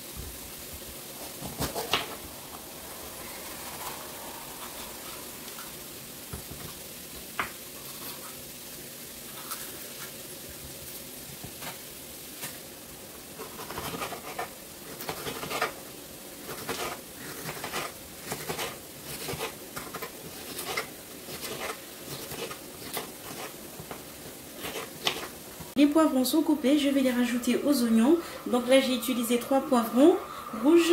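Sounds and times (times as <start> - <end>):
faint hiss: 0.0 - 30.9
knife chopping on wooden board: 24.6 - 25.3.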